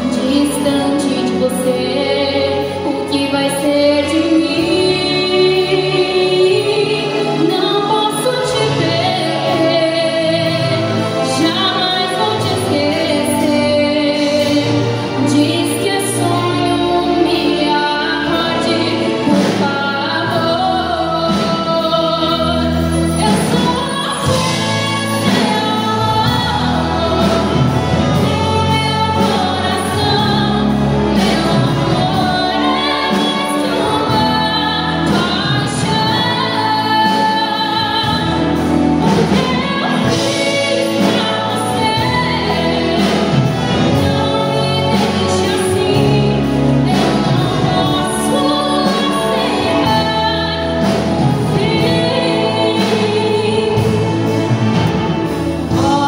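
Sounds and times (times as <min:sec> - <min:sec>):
live band playing: 0:00.0 - 0:56.0
woman singing into a microphone: 0:00.0 - 0:56.0.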